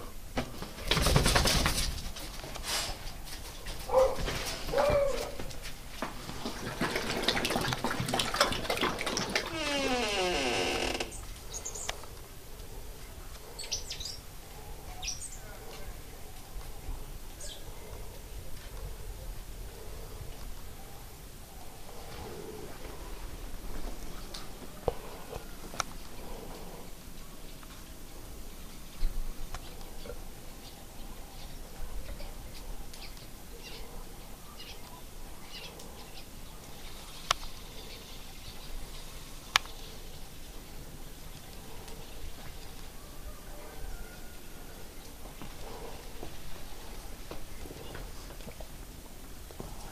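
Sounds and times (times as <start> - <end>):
small birds chirping: 27.1 - 40.3.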